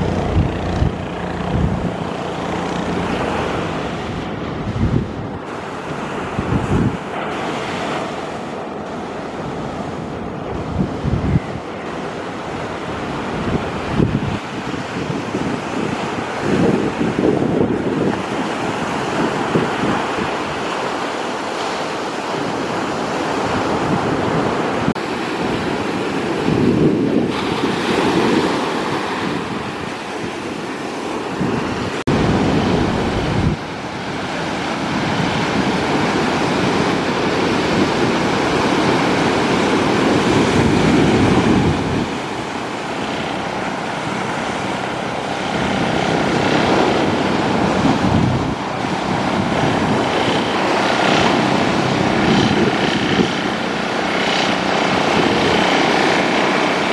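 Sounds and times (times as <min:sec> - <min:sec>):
outboard motor droning: 0:00.0 - 0:56.9
wind buffeting microphone: 0:00.0 - 0:56.9
surf breaking: 0:24.6 - 0:56.9.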